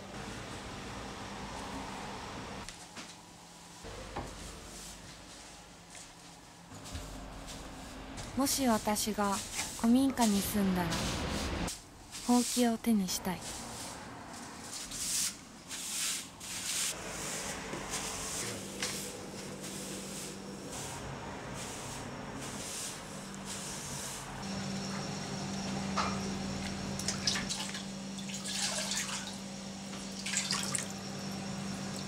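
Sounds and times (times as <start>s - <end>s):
broom sweeping wooden floor: 4.2s - 27.8s.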